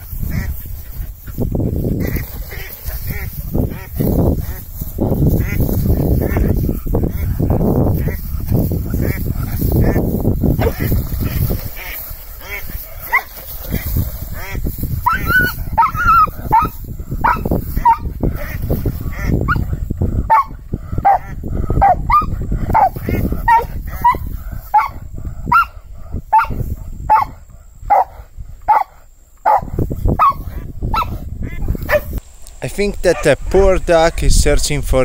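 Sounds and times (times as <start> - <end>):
rustling: 7.9 - 15.1
dog whining and yipping: 15.1 - 16.7.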